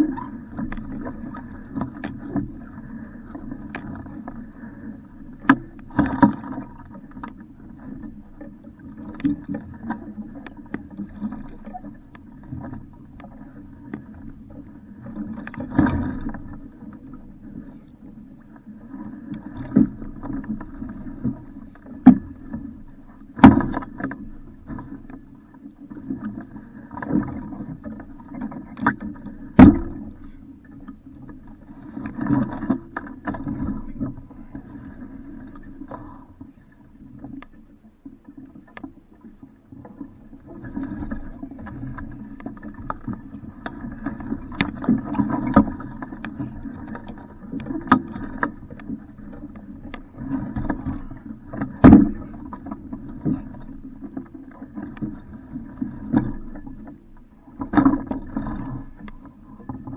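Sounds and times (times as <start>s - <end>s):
sharp knocks on boat: 23.3s - 24.1s, 29.5s - 30.2s, 51.8s - 52.2s.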